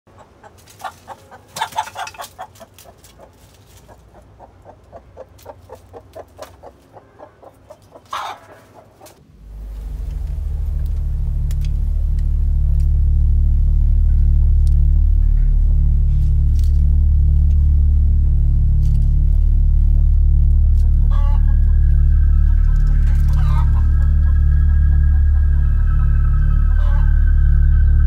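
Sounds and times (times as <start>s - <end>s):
hen clucking: 0.1s - 9.2s, 20.9s - 27.8s
hen squawking: 0.2s - 9.2s, 21.0s - 27.4s
low droning rumble: 0.3s - 28.0s.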